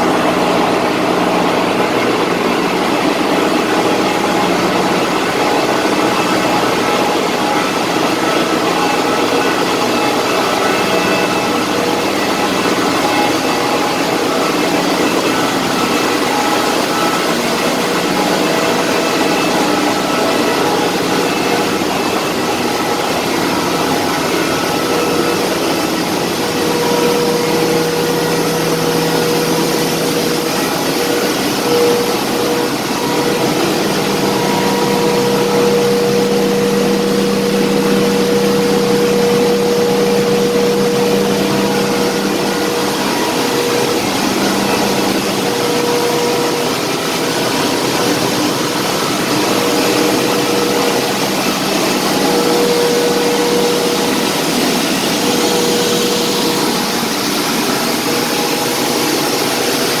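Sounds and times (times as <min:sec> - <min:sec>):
loud machinery drone: 0:00.0 - 1:00.0
steady hum: 0:00.0 - 1:00.0
low hum: 0:15.3 - 0:58.6.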